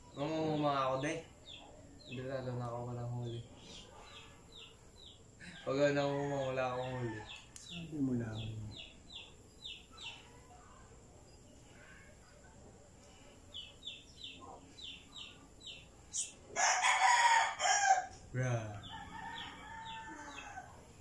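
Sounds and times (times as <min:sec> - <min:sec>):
small bird chirping: 0:00.0 - 0:17.0
rooster crowing: 0:05.6 - 0:07.6, 0:16.5 - 0:21.0.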